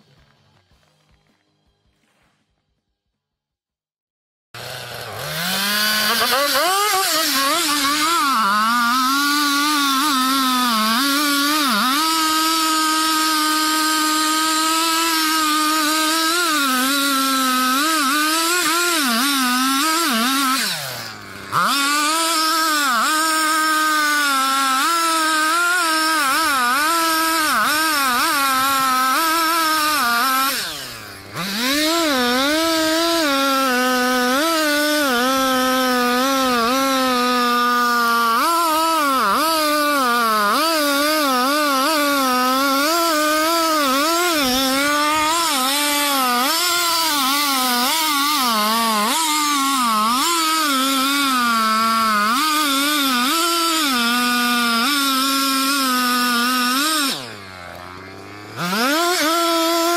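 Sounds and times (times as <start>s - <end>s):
chainsaw cutting wood: 0.0s - 3.1s, 4.6s - 59.9s.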